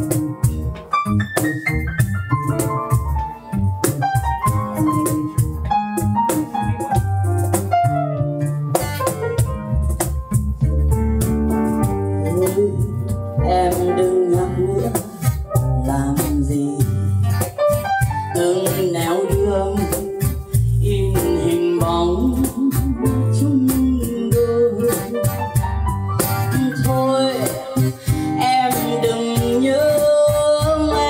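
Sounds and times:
acoustic guitar strumming: 0:00.0 - 0:31.0
keyboard chords: 0:00.0 - 0:31.0
person singing: 0:12.2 - 0:17.1, 0:18.2 - 0:25.4, 0:26.2 - 0:31.0.

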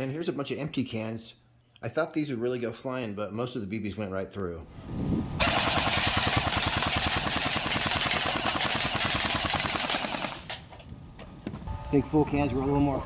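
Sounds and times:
bb rifle full-auto rattle: 0:05.5 - 0:10.8.

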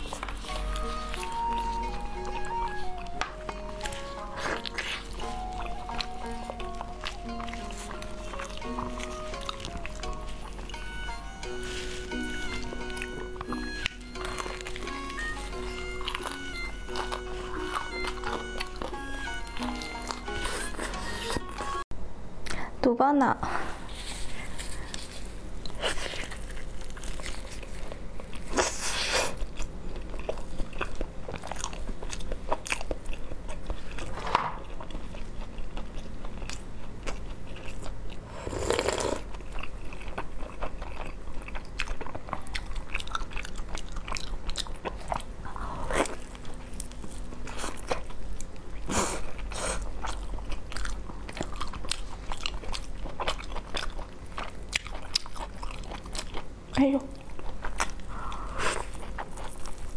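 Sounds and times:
person chewing with wet smacks: 0:00.0 - 0:10.8, 0:12.2 - 0:21.4, 0:24.9 - 0:59.9.

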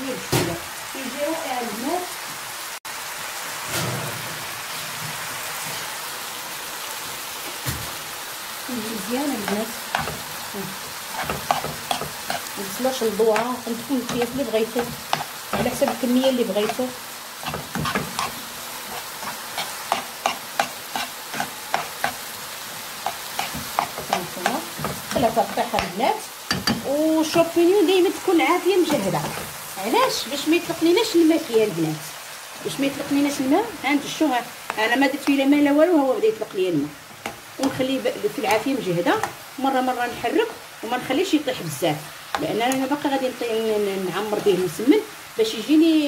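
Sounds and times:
vegetables sizzling in oil: 0:00.0 - 0:46.0
wooden spoon stirring and scraping: 0:09.3 - 0:27.6, 0:28.2 - 0:29.8.

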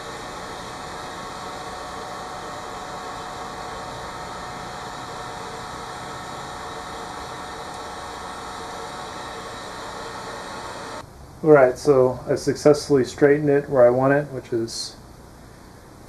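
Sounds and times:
heat gun fan whirring: 0:00.0 - 0:11.0.

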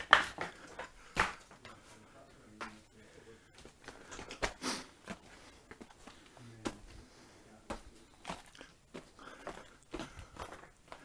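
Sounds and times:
footsteps crunching on rubble: 0:03.5 - 0:11.0.

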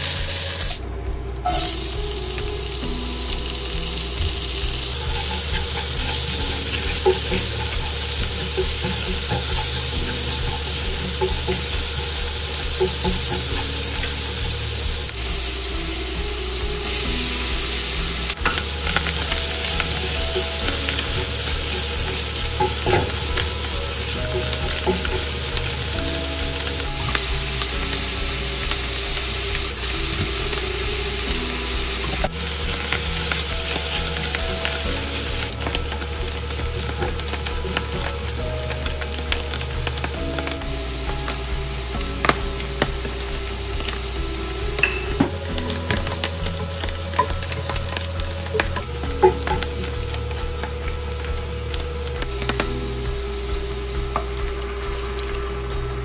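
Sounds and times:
onions and mushrooms sizzling: 0:00.0 - 0:00.8, 0:01.4 - 0:56.0
wooden spatula scraping a pan: 0:04.2 - 0:15.4.

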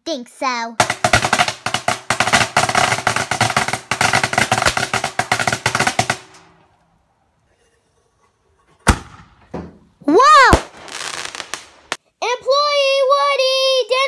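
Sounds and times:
firecrackers crackling: 0:00.8 - 0:06.8, 0:10.2 - 0:12.0
loud bang: 0:00.8 - 0:06.8, 0:08.8 - 0:09.7.

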